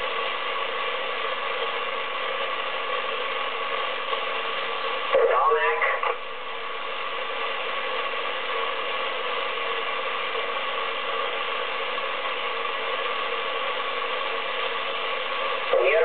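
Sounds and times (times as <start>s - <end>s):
radio static: 2.7s - 16.0s.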